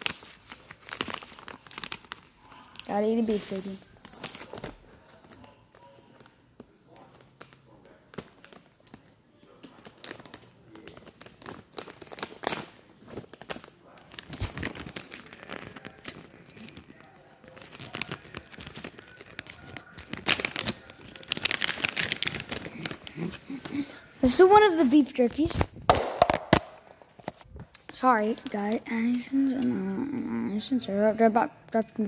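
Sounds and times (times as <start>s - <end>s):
plastic bag crinkling: 0.0s - 5.4s, 6.9s - 25.5s.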